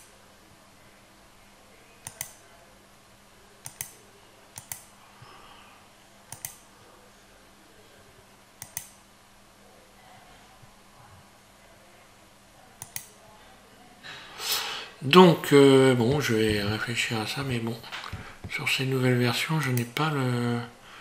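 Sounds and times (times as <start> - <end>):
computer mouse clicking: 2.0 - 2.4, 3.6 - 4.0, 4.6 - 4.9, 6.3 - 6.6, 8.6 - 9.0, 12.8 - 13.2.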